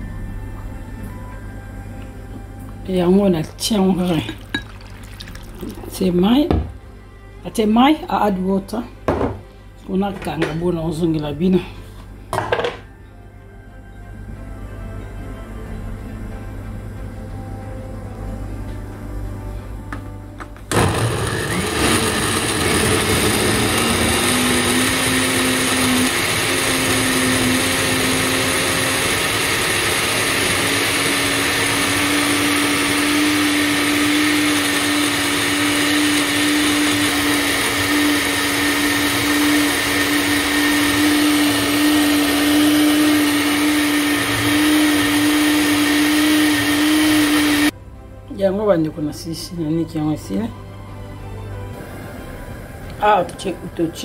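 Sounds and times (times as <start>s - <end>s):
blender motor running: 20.7s - 47.8s.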